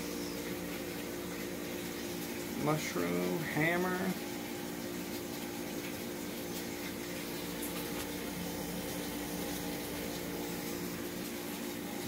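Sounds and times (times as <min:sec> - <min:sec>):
aquarium pumps humming: 0:00.0 - 0:12.0
circulating water hiss: 0:00.0 - 0:12.0.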